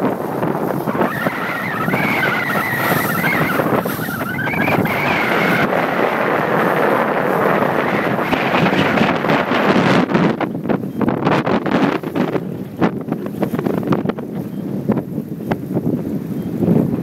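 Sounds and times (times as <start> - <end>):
choppy water along hull: 0.0 - 17.0
wind buffeting microphone: 0.0 - 17.0
whistle-like high tone: 1.0 - 5.5.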